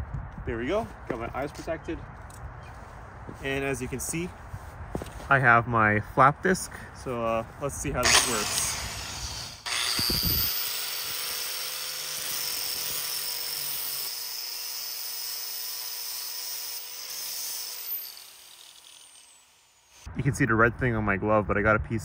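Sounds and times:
angle grinder sanding metal: 8.0 - 20.1.

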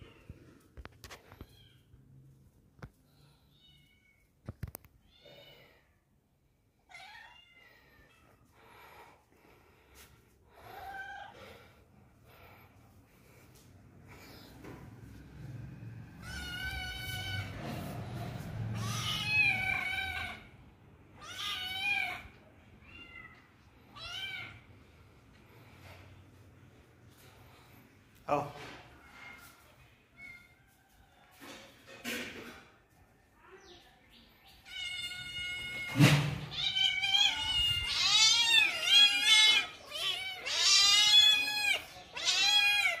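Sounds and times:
kitten meowing: 16.2 - 17.5, 18.7 - 20.4, 34.7 - 43.0.

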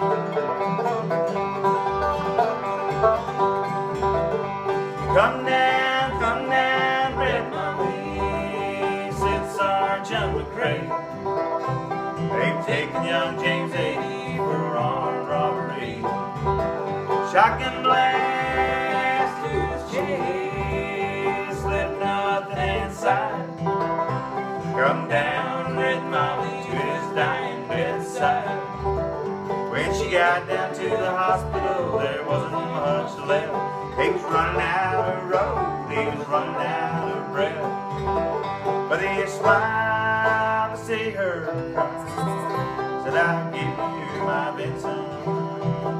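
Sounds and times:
banjo rolls: 0.0 - 45.9
strummed acoustic guitar: 0.0 - 45.9
upright bass plucking: 0.0 - 45.9.

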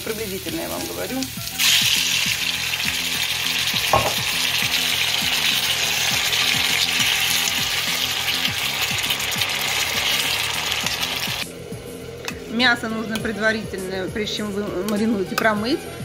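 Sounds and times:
tomatoes sizzling in oil: 0.0 - 11.5
sharp knock: 3.9 - 4.2.

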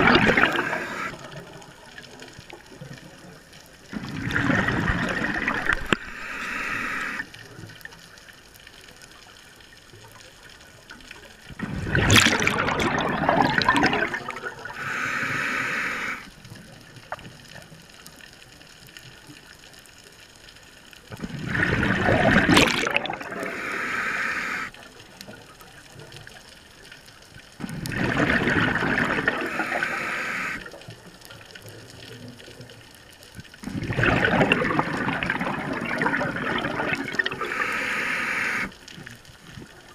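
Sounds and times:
regulator breath hiss: 0.5 - 1.2, 5.9 - 7.3, 14.7 - 16.3, 23.4 - 24.7, 29.4 - 30.7, 37.4 - 38.8.

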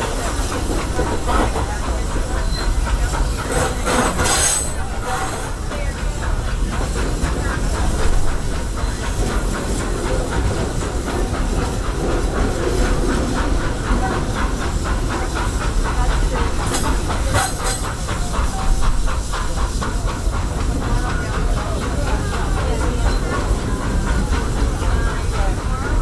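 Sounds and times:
steam train rumbling: 0.0 - 26.0.

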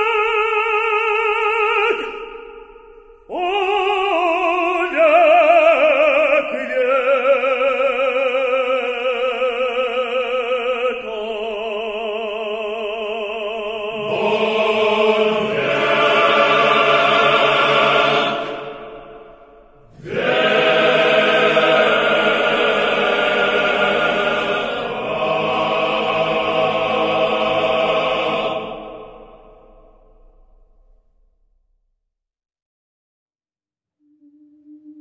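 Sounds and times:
choir singing a hymn: 3.3 - 30.1.

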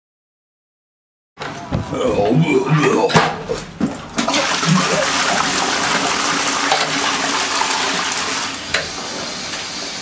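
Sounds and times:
toilet flushing: 4.2 - 10.0.

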